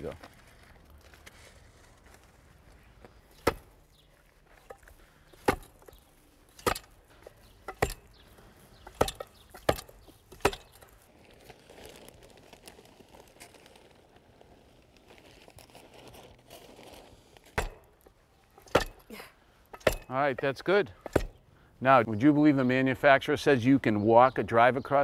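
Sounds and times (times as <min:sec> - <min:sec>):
hand tamper thudding on asphalt: 0:06.6 - 0:08.2, 0:08.8 - 0:10.9, 0:21.0 - 0:21.4.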